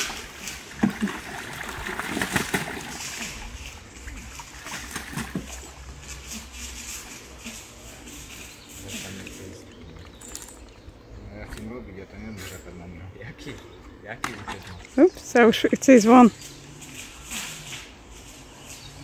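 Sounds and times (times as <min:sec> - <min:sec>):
ducks splashing in water: 0:00.0 - 0:06.6.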